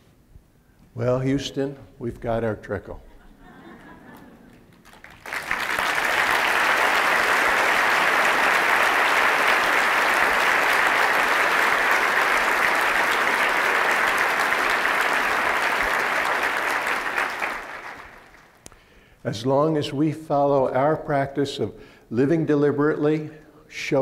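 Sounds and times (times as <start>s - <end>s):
large audience applauding: 3.8s - 18.7s.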